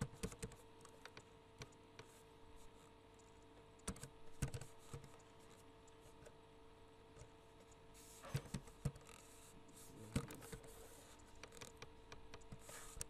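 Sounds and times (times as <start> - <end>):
computer keyboard typing: 0.0 - 2.2, 3.2 - 6.1.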